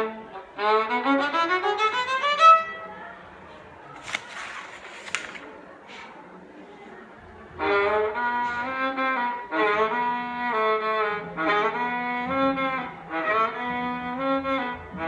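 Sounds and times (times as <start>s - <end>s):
bowed viola melody: 0.0s - 2.9s, 7.6s - 15.0s.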